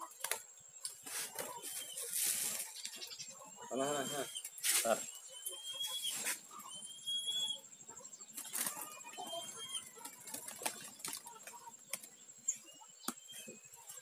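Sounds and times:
short rising bird chirps: 0:03.8 - 0:07.7.

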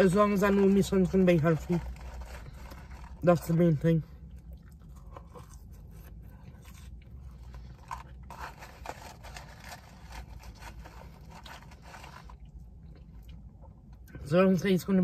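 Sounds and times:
low steady hum: 0:00.0 - 0:15.0
chewing fries: 0:04.2 - 0:14.2.

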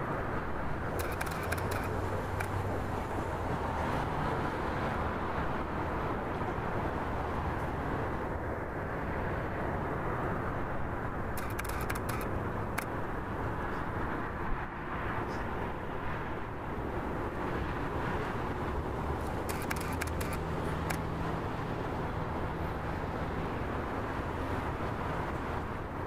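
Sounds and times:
distant city traffic hum: 0:00.0 - 0:26.0
camera shutter clicking: 0:01.0 - 0:02.6, 0:11.4 - 0:12.9, 0:19.3 - 0:21.1.

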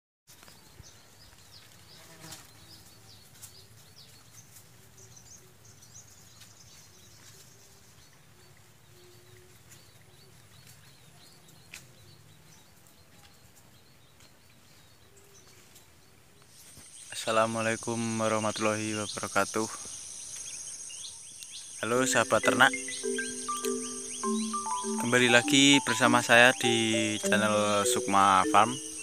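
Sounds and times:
high chirps: 0:16.8 - 0:29.0
drawn-out animal calls: 0:21.8 - 0:29.0.

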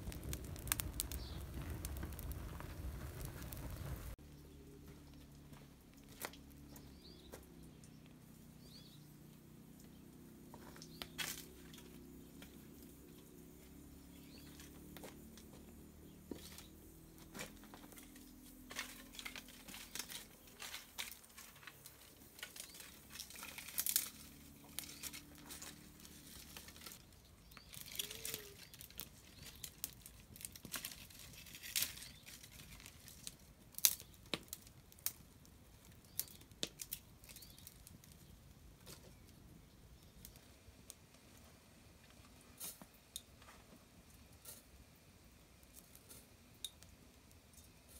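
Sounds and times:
twigs snapping and cracking: 0:00.0 - 0:03.9, 0:06.0 - 0:06.8, 0:10.6 - 0:12.6, 0:16.3 - 0:39.2.

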